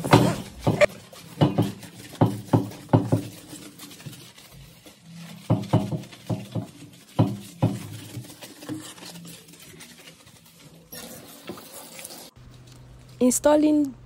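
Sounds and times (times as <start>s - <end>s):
household objects knocking: 0.0s - 3.4s, 5.5s - 8.1s.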